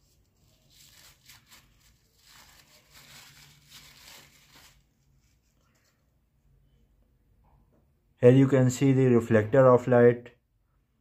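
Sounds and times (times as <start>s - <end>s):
wrapper crinkling: 0.0s - 6.0s.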